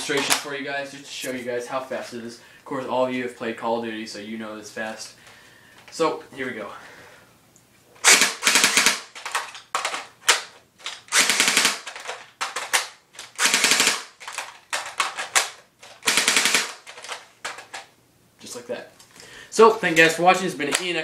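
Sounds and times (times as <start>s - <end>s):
airsoft rifle automatic bursts: 8.0s - 10.5s, 11.1s - 17.2s.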